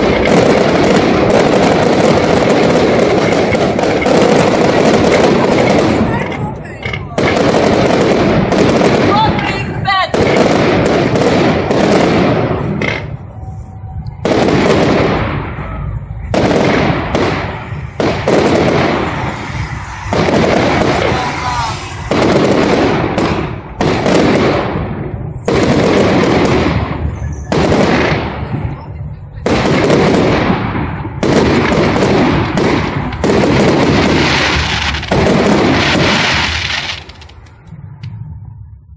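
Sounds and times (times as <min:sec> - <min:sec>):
firework shells bursting: 0:00.0 - 0:13.2, 0:29.5 - 0:37.7
firework crackle: 0:00.0 - 0:38.2.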